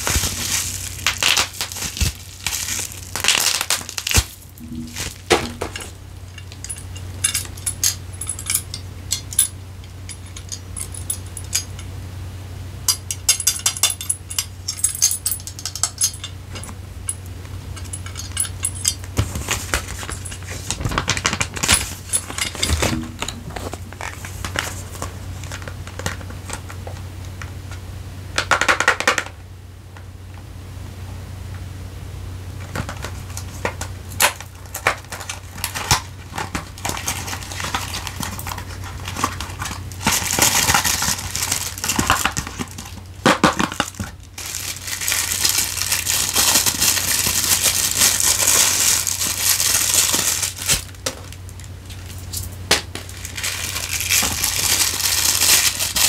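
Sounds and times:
packaging rustle: 0:00.0 - 0:06.8, 0:19.0 - 0:26.7, 0:32.8 - 0:56.0
low hum: 0:00.0 - 0:26.2.

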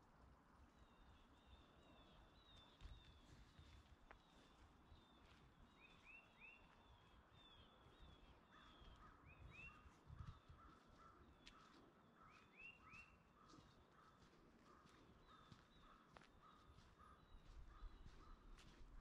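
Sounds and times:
faint bird calls: 0:05.2 - 0:19.0.

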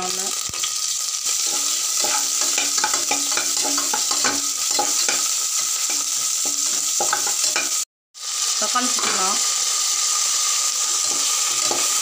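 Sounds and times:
onions sizzling in oil: 0:00.0 - 0:12.0
metal spatula scraping pot: 0:01.3 - 0:05.3, 0:11.0 - 0:12.0.

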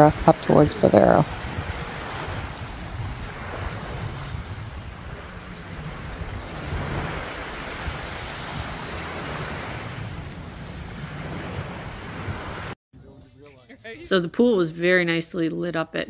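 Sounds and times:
surf washing onto beach: 0:00.0 - 0:12.8
wind buffeting microphone: 0:00.0 - 0:12.8.

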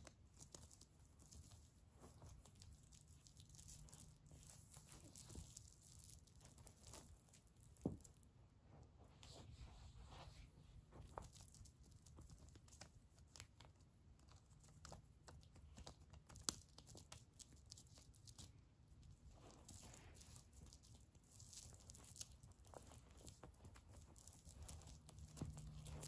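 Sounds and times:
kitten clawing at toy on carpet: 0:10.1 - 0:26.0.

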